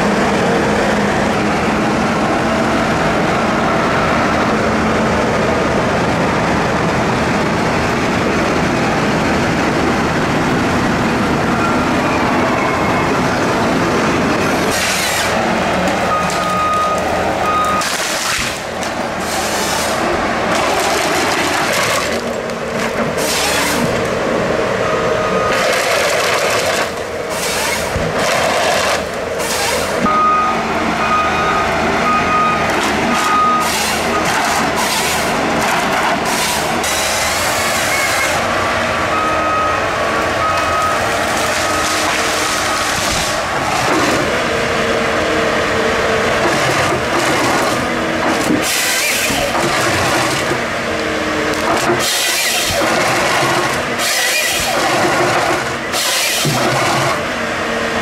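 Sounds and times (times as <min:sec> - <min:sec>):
harvester engine and hydraulics: 0:00.0 - 0:58.0
reverse warning alarm beeping: 0:11.5 - 0:13.4, 0:16.0 - 0:18.2, 0:30.0 - 0:34.4, 0:39.0 - 0:43.5.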